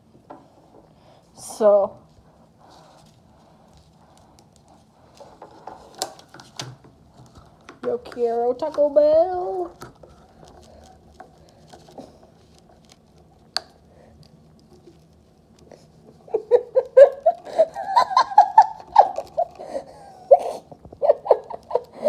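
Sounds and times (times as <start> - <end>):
person giggling: 16.1 - 22.0.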